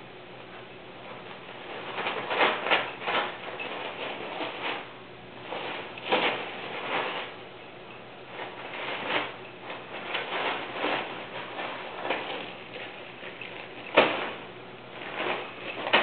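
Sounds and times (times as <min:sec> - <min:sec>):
gift wrapping rustling and crinkling: 0:08.4 - 0:16.0.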